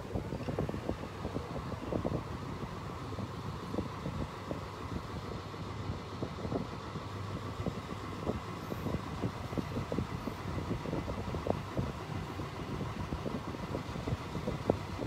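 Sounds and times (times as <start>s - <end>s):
low vehicle rumble: 0.0s - 15.0s.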